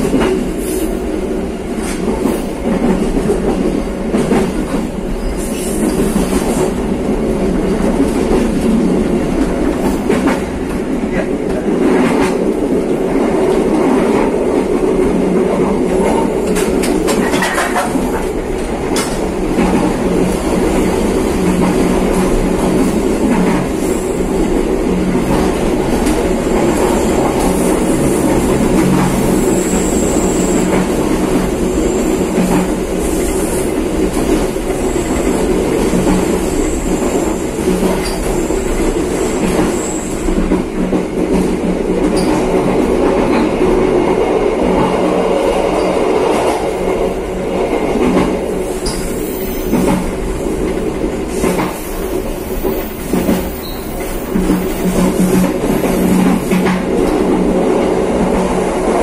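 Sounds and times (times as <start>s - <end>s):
train rumbling on rails: 0.0s - 59.0s
wheels clacking over rail joints: 15.7s - 23.8s
high wheel squeal: 53.5s - 54.0s.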